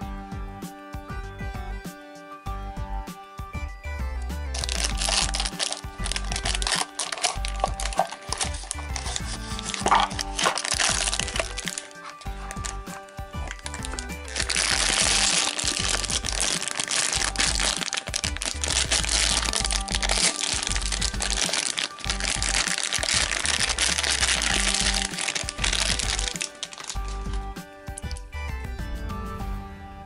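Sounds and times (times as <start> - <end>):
background music: 0.0 - 30.0
plastic foil packet crinkling: 4.5 - 28.2.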